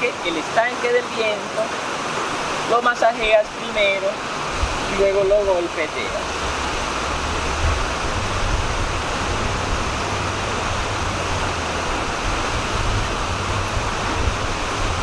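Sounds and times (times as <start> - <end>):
river rushing: 0.0 - 15.0
low rumble: 6.2 - 15.0.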